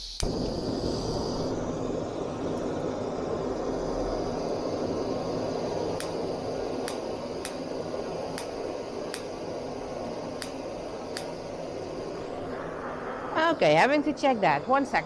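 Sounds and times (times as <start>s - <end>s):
lighter clicking: 0.0s - 0.4s, 5.1s - 12.1s
steady rushing noise: 0.2s - 15.0s.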